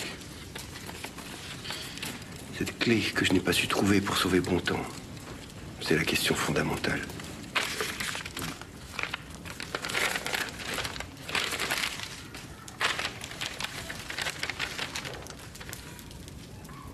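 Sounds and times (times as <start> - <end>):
paper crumpling and rustling: 0.0 - 16.9
wood fire crackling: 0.0 - 16.9.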